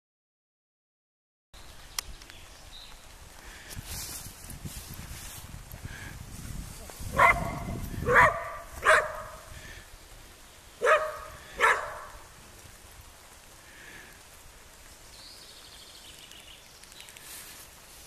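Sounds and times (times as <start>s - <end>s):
dog barking: 7.1s - 9.5s, 10.8s - 12.2s.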